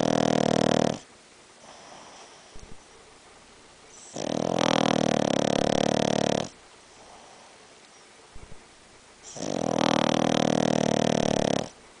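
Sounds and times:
dog snoring loudly: 0.0s - 2.6s, 3.9s - 7.6s, 9.2s - 11.8s
dog breathing quietly: 0.9s - 3.0s, 3.9s - 8.1s.

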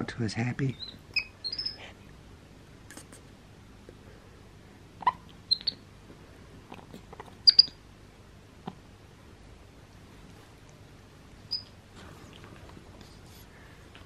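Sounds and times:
monkeys squeaking: 0.7s - 1.9s, 5.0s - 5.8s, 7.4s - 7.8s.

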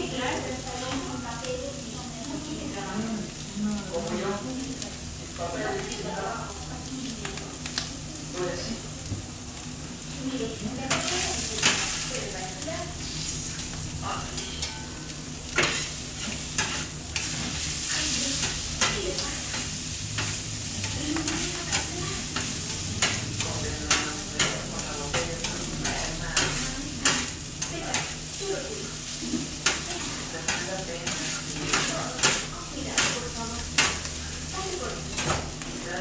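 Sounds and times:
food sizzling on a griddle: 0.0s - 36.0s
spatula and knife clacking on steel: 10.9s - 12.0s, 15.5s - 28.2s, 29.5s - 34.2s, 35.1s - 35.5s.

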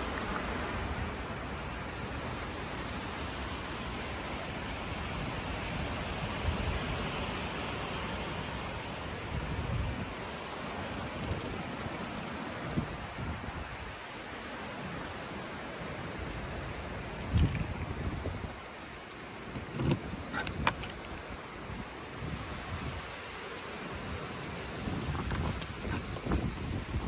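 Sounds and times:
outdoor background hiss: 0.0s - 27.0s
wind rumble on microphone: 0.0s - 27.0s.

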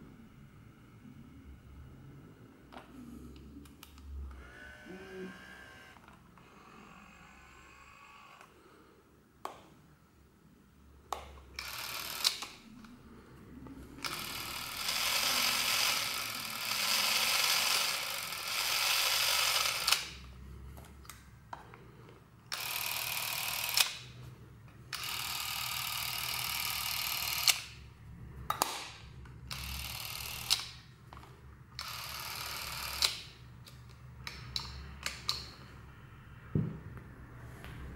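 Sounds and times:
camera motor whirring: 4.4s - 8.4s, 11.6s - 12.5s, 14.0s - 20.2s, 22.5s - 24.0s, 25.0s - 27.7s, 29.5s - 30.7s, 31.8s - 33.1s.

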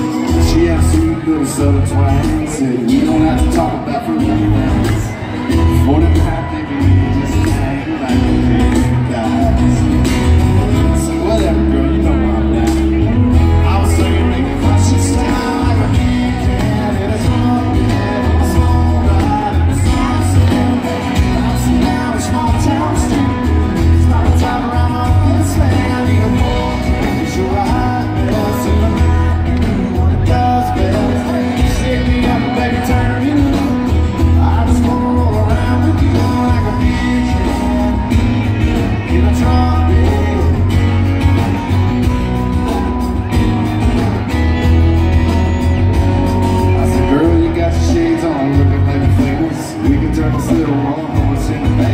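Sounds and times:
male lead vocal singing: 0.0s - 43.3s, 45.8s - 51.9s
bass guitar: 0.0s - 51.9s
drums: 0.0s - 51.9s
electric guitars: 0.0s - 51.9s.

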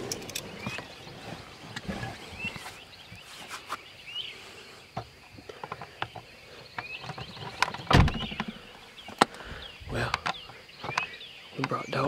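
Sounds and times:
faint bird chirps: 0.0s - 12.0s
handling clicks and knocks: 5.0s - 9.4s, 10.0s - 11.8s.

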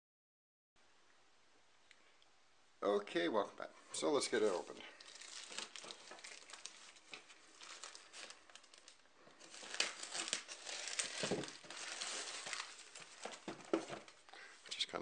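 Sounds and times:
plastic bag and tape crinkling: 4.0s - 14.8s
sharp crackles: 4.3s - 14.2s.

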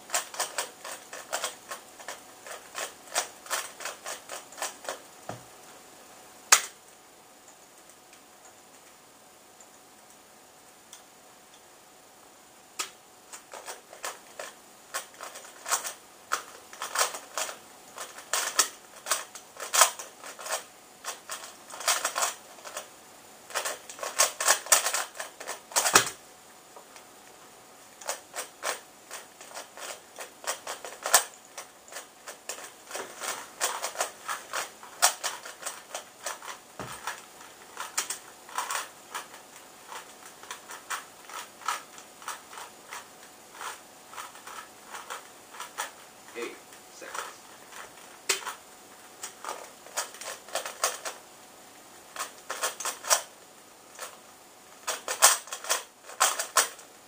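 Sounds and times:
plastic puzzle cube clicking: 0.1s - 5.0s, 49.4s - 51.2s, 52.2s - 53.3s, 54.8s - 56.8s.

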